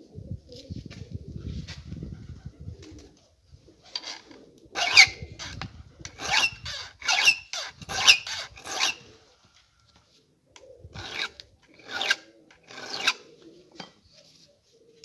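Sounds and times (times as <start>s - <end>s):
file scraping chainsaw chain: 4.8s - 9.0s, 11.0s - 13.2s.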